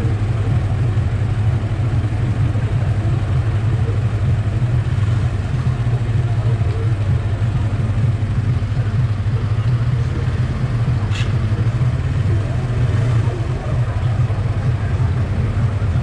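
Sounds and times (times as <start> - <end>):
motorcycle engine idling: 0.0 - 16.0
sharp click: 11.1 - 11.5.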